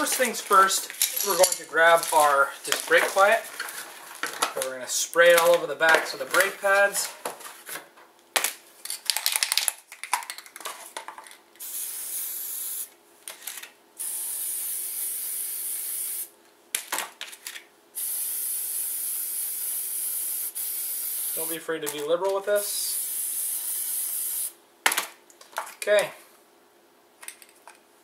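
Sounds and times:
aerosol spray hissing: 14.0 - 16.3, 18.0 - 21.5, 22.8 - 24.5.

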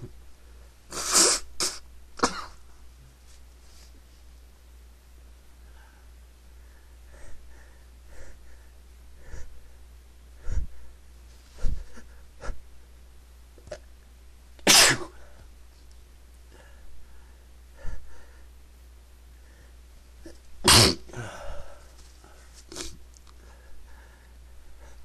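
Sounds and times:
person sneezing: 0.9 - 2.6, 14.6 - 15.2, 20.3 - 21.7, 22.7 - 23.0.

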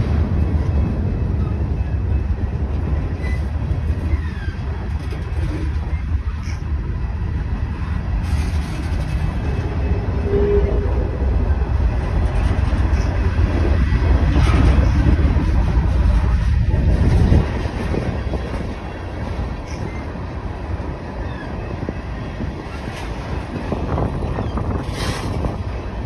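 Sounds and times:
freight train wheels rumbling: 0.0 - 26.0.

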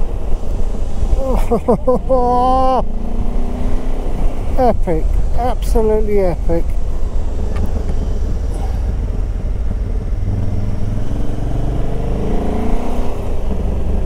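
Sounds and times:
wind and road noise: 0.0 - 14.0
motorcycle engine accelerating: 6.4 - 14.0.

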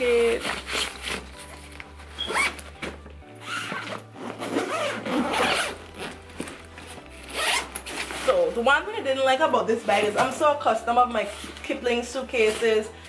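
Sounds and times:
zippers pulled open and shut: 0.0 - 8.6
fabric handling: 0.0 - 13.0
quiet background music: 0.0 - 13.0.

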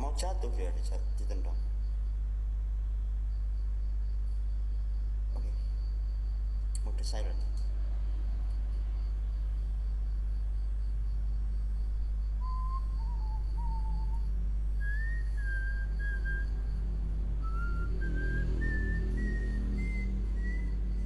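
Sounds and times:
steady low hum: 0.0 - 21.0
person whistling a slow tune: 12.4 - 16.8, 17.4 - 21.0.

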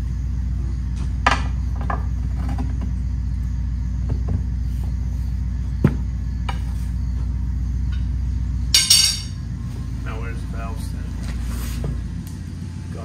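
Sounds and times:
low machine hum: 0.0 - 13.0
sharp metal clanks: 8.7 - 9.4
tire irons scraping wheel rim: 10.8 - 12.2.

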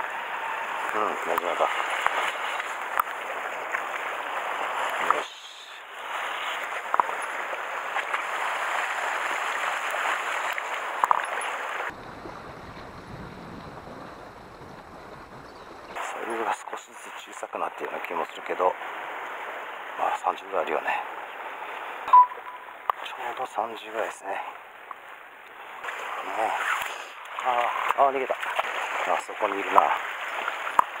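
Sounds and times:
surf washing over rocks: 0.0 - 22.1, 25.6 - 31.0.

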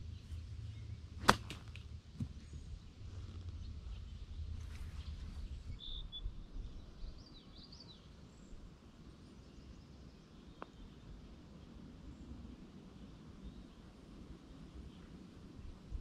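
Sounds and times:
wind rumbling on microphone: 0.0 - 7.6, 10.8 - 16.0
bird chirping: 3.5 - 8.6.

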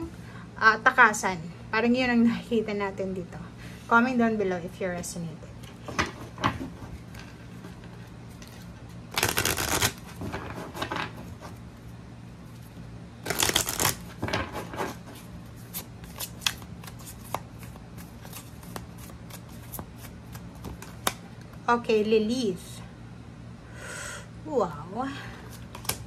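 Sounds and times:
overhand shuffling cards: 6.1 - 11.7, 12.5 - 21.6
riffle shuffling cards: 8.4 - 10.8, 13.2 - 21.2.

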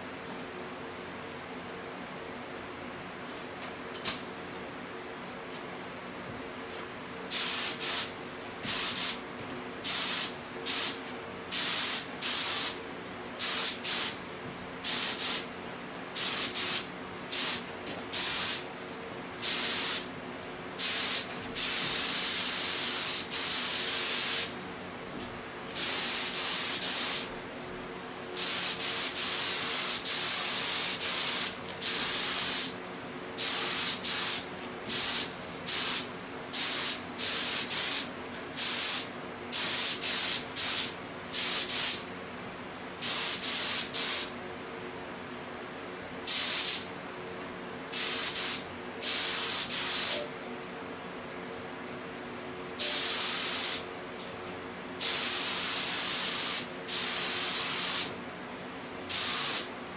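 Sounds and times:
air spray gun hissing: 7.3 - 9.2, 9.8 - 15.5, 16.2 - 18.8, 19.4 - 24.6, 25.7 - 27.3, 28.2 - 32.8, 33.4 - 42.2, 42.8 - 44.3, 46.3 - 46.9, 47.9 - 50.3, 52.8 - 53.8, 55.0 - 58.2, 58.8 - 59.8.

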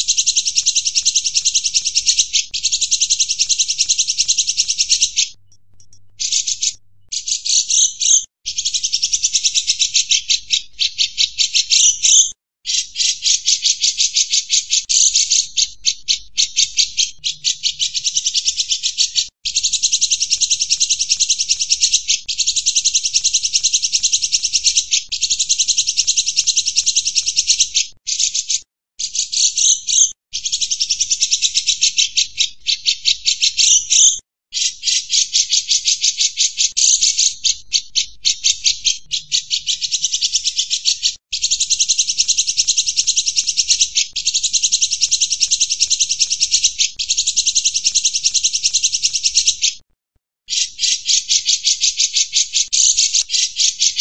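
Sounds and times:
bird buzzy chattering trill: 0.0 - 32.4.

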